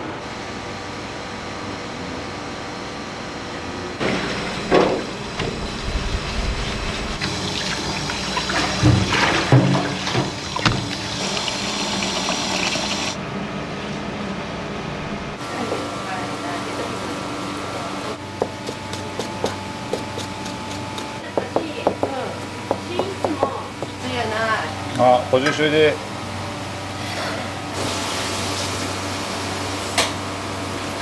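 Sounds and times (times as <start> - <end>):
steady hum: 2.0 - 16.6
water running from a tap: 7.2 - 13.2.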